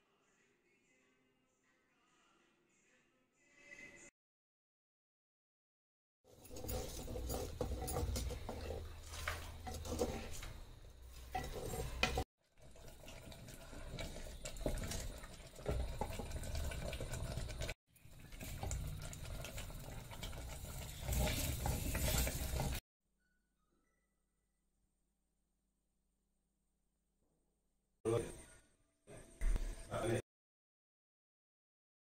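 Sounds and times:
wooden spoon scraping clay pot: 6.3s - 12.3s, 19.5s - 22.8s
liquid bubbling: 11.4s - 22.8s.

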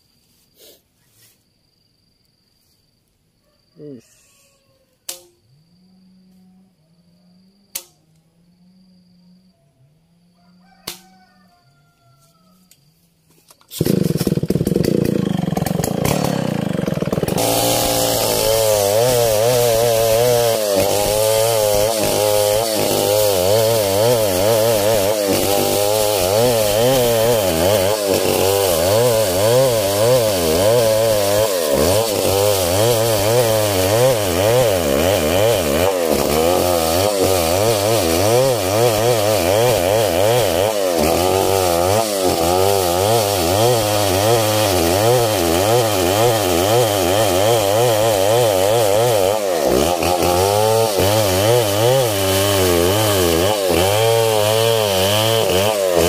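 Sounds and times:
chainsaw cutting wood: 13.5s - 56.0s.

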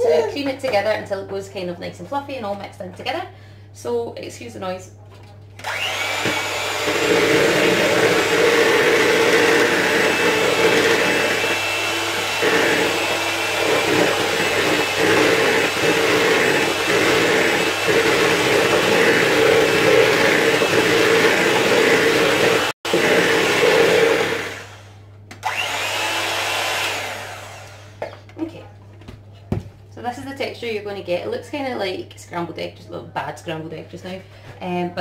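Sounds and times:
electric hand mixer motor hum: 5.6s - 28.0s.

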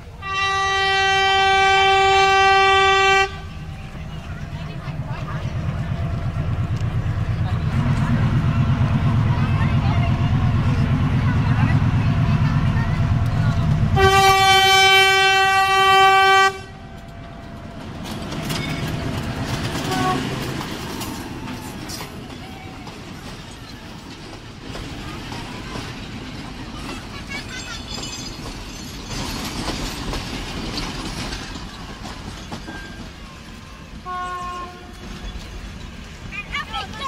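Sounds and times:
train rumbling over track: 0.0s - 37.0s
train horn blast: 0.2s - 3.7s, 13.9s - 17.0s, 19.8s - 20.5s, 34.0s - 35.1s.

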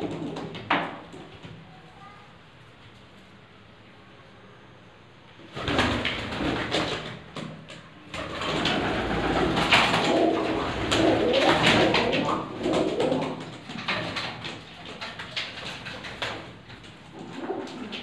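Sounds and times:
pigeons cooing: 8.4s - 14.2s, 15.1s - 18.0s.

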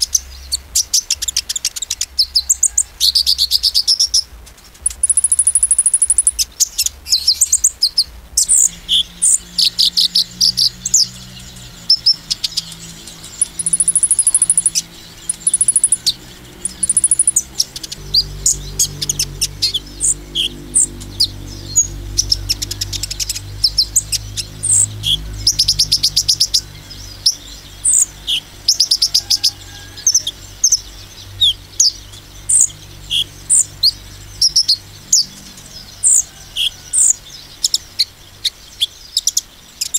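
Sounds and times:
bird chirping and trilling: 0.0s - 39.9s.

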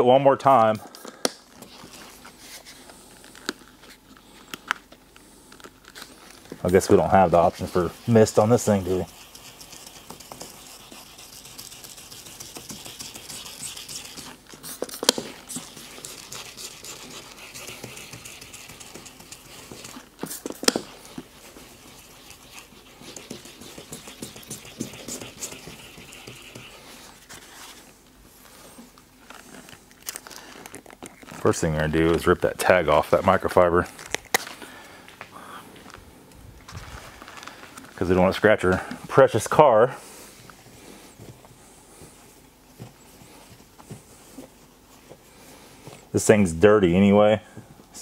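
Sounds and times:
sandpaper scrubbing plastic: 6.6s - 27.8s.

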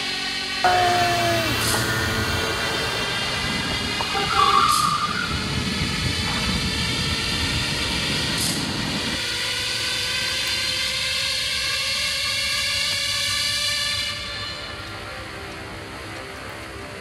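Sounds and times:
background music: 0.6s - 5.3s
motor scooters riding off: 0.6s - 9.4s
wind on microphone: 0.7s - 9.7s.

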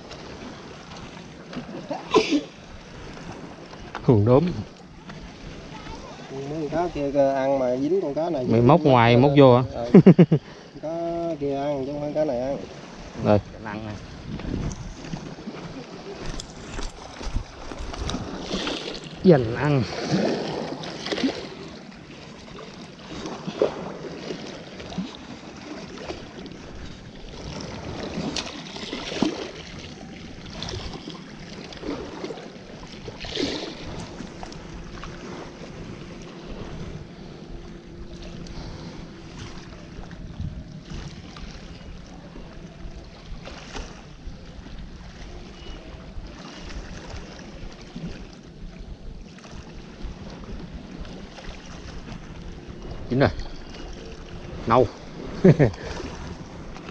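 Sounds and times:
sea wash: 0.0s - 56.9s
wind on microphone: 12.1s - 21.8s, 22.5s - 56.9s.

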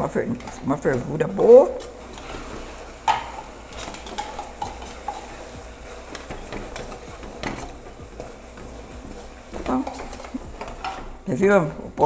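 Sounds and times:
spoon stirring and scraping pan: 0.0s - 12.0s
sugar mixture bubbling: 0.0s - 12.0s
spoon knocking: 3.0s - 11.1s.

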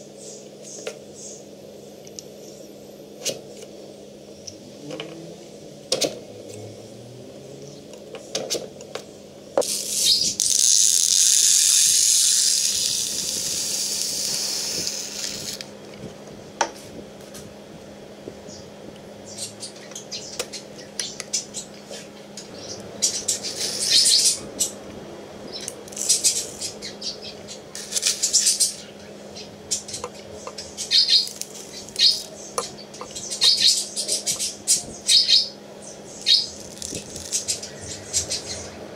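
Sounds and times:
loud continuous hiss: 0.0s - 38.9s.

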